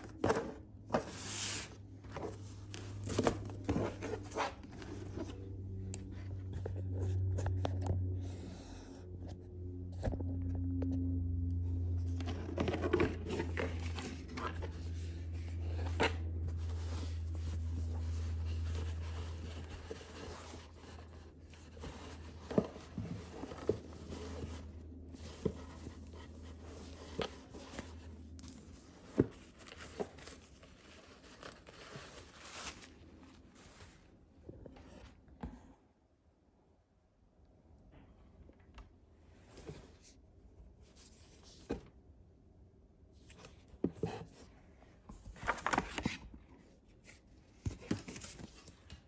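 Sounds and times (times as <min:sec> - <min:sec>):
low hum: 0:00.0 - 0:31.7
tissue paper rustling: 0:12.2 - 0:34.2.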